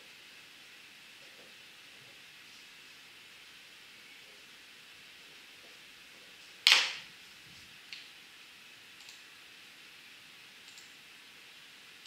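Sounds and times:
laptop clicks: 6.6 - 7.0
faint ticks: 9.0 - 9.2, 10.6 - 11.0.

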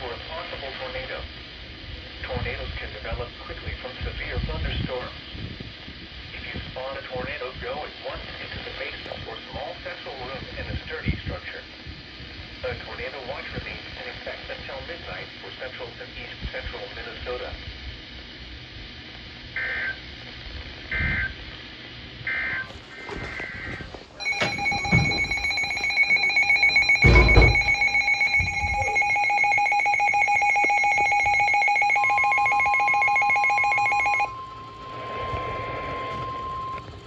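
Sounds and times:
data burst tones: 22.2 - 37.0
steady alert tone: 24.2 - 36.6
fast-pulsing multi-tone alarm beep: 24.2 - 37.0
dull thump: 26.8 - 27.9.

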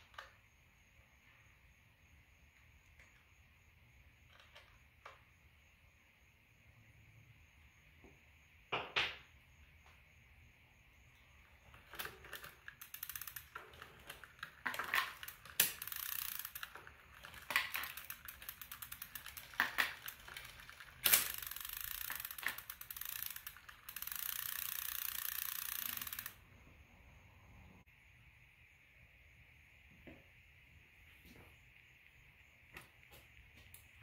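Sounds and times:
bicycle freewheel ratchet ticking: 11.2 - 26.5.

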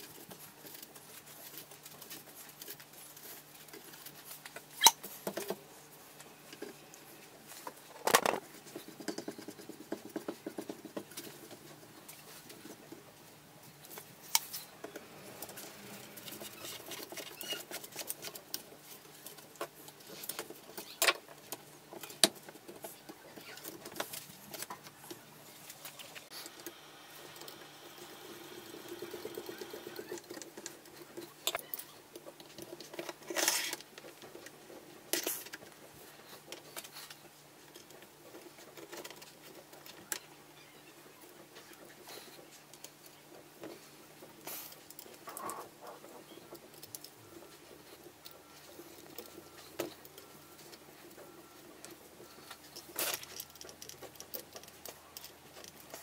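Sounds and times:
metal parts clicking and scraping: 29.2 - 34.2.

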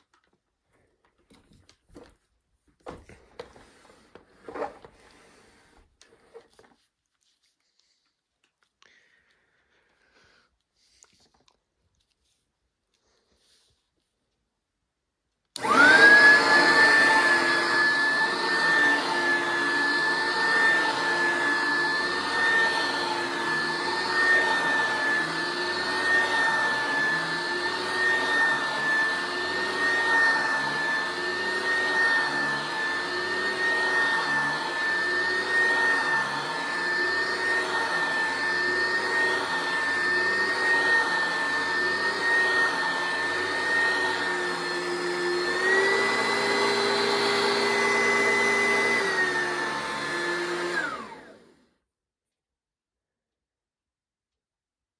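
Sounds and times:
vacuum cleaner motor whine: 2.8 - 6.6, 15.6 - 51.8
vacuum rumbling over carpet: 15.6 - 51.6.

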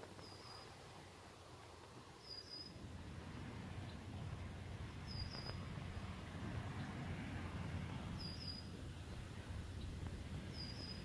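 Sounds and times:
low outdoor rumble: 0.0 - 11.0
small bird chirping: 0.2 - 0.8, 2.2 - 2.8, 5.0 - 5.6, 8.2 - 8.7, 9.7 - 11.0.

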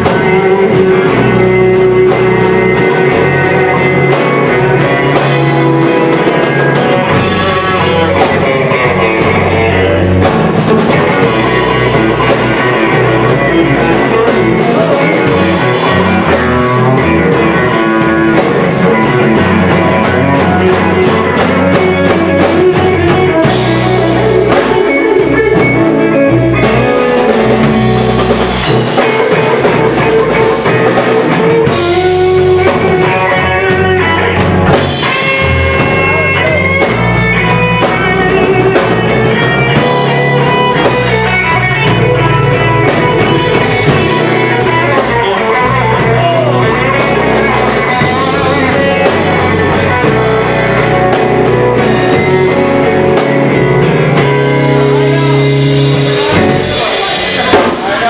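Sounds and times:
bending guitar notes: 0.0 - 58.0
blues band playing: 0.0 - 58.0.

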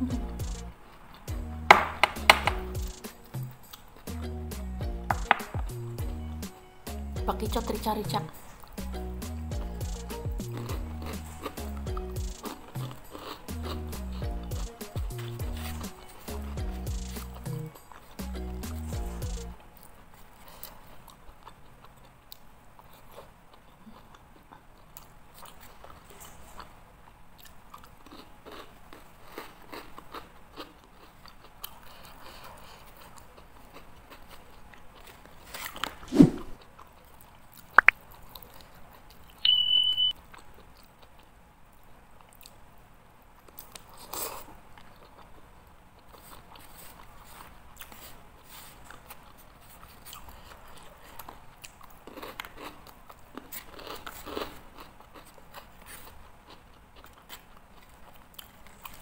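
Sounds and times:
person chewing and crunching: 9.8 - 36.0, 36.6 - 39.5, 40.2 - 42.6, 43.4 - 59.0
short high beep: 39.4 - 40.2.

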